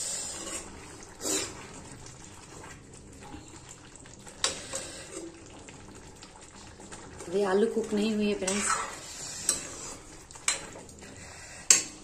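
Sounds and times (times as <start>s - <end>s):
metal ladle scraping a pot: 0.0s - 1.6s, 8.4s - 12.0s
food simmering in a metal pot: 0.0s - 12.0s.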